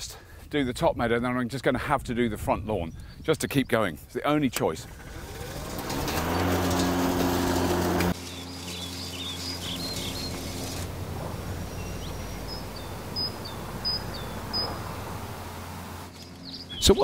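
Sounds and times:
birds chirping: 0:02.5 - 0:17.0
electric lawn mower humming: 0:04.8 - 0:16.6.

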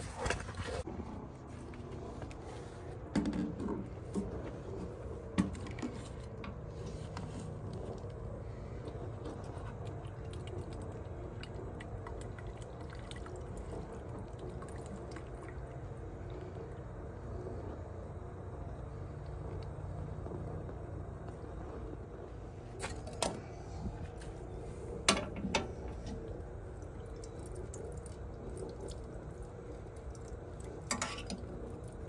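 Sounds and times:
water filling a plastic bottle: 0:07.1 - 0:16.8, 0:25.9 - 0:32.0.

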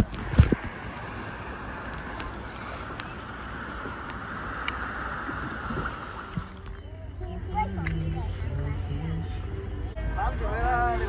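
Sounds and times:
choppy sea water: 0:00.0 - 0:06.9.

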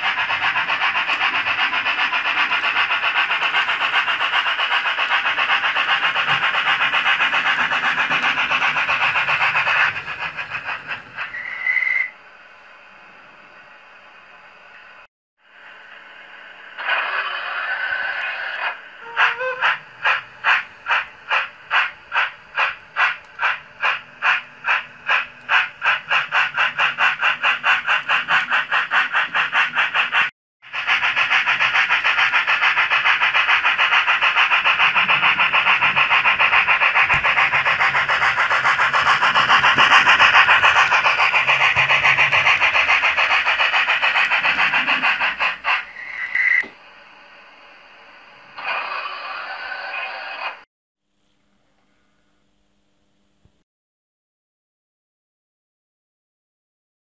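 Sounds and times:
steam exhaust chuffs from small speaker: 0:00.0 - 0:12.1, 0:15.9 - 0:46.7.

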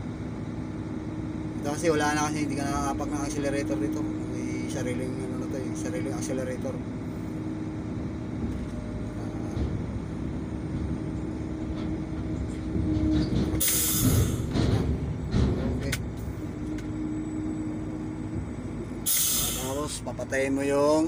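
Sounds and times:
heavy rumbling: 0:00.0 - 0:21.0
truck engine running: 0:00.0 - 0:21.0
loud hiss: 0:19.1 - 0:19.9.

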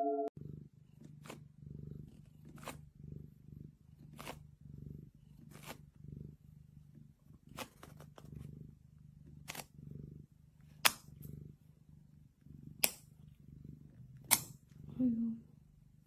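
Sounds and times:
cat purring: 0:00.0 - 0:16.0
sharp clicks: 0:14.2 - 0:14.6.

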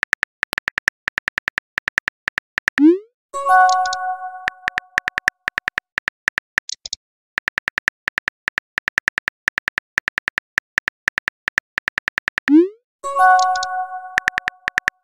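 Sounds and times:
phone keyboard key clicks: 0:00.0 - 0:02.8, 0:03.7 - 0:12.5, 0:13.4 - 0:15.0
brief high-pitched sound: 0:02.8 - 0:05.0.

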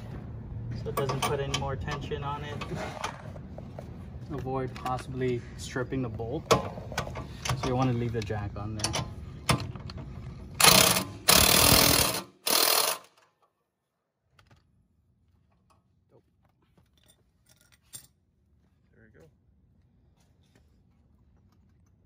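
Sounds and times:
impact wrench hammering: 0:10.6 - 0:13.1.

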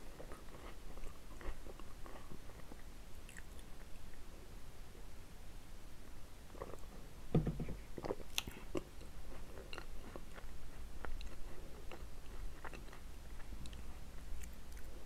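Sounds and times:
person chewing: 0:00.0 - 0:04.2, 0:07.9 - 0:15.0.

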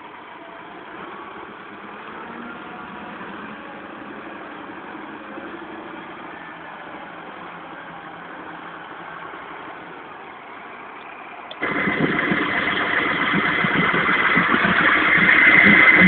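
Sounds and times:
loud harsh noise with high tone: 0:00.0 - 0:16.0
tractor engine idling: 0:00.0 - 0:16.0.

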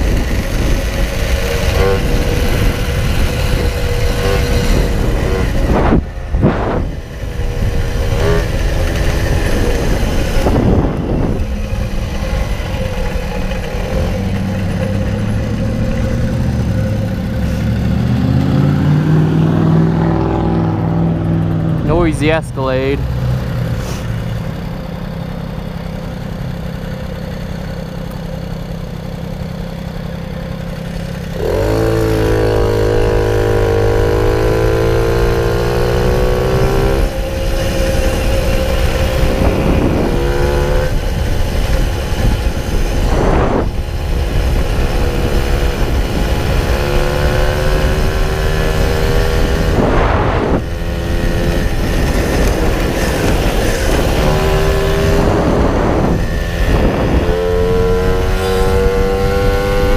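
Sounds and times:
wind noise rushes: 0:00.0 - 0:14.4, 0:31.5 - 0:59.9
moped engine revving: 0:00.0 - 0:59.9.

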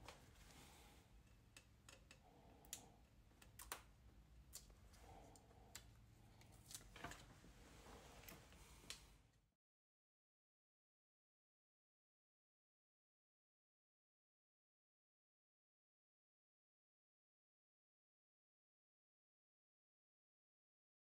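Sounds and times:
faint small clicks: 0:01.2 - 0:03.9.

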